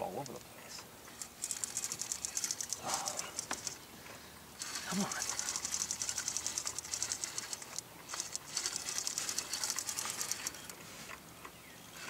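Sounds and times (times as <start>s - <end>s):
fishing reel clicking rapidly: 1.2s - 3.8s, 4.6s - 10.7s.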